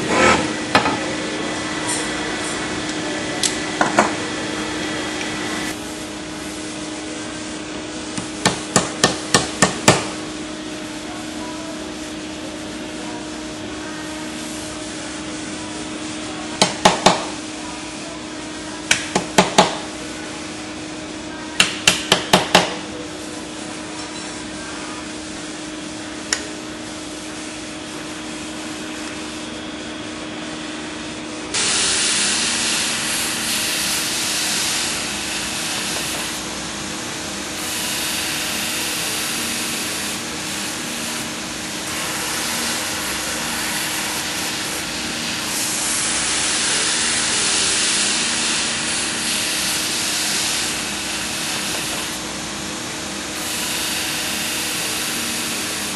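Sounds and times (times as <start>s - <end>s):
workshop machine hum: 0.0s - 55.9s
hammer tapping metal: 8.2s - 10.1s, 16.6s - 17.3s, 21.6s - 22.8s
blade on grinding wheel hiss: 31.5s - 55.9s.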